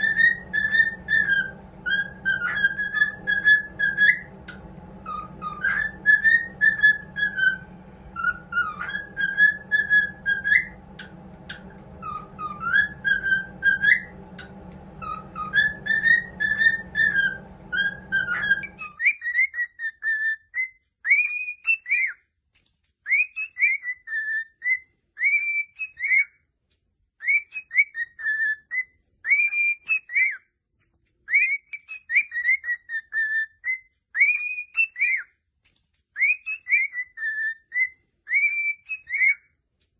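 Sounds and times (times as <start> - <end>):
low steady hum: 0.0 - 19.0
cockatiels whistling: 0.0 - 22.2, 23.0 - 26.4, 27.2 - 30.4, 31.3 - 35.3, 36.2 - 39.6.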